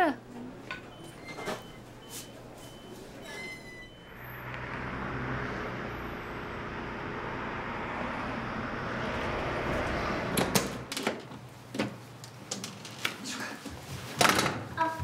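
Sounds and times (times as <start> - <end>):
vehicle engine hum: 3.9 - 10.9
road noise: 3.9 - 12.2.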